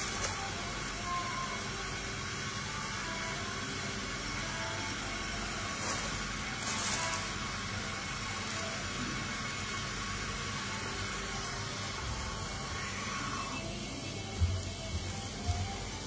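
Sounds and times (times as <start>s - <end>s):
steady hiss: 0.0s - 16.0s
high rustling bursts: 5.6s - 7.6s.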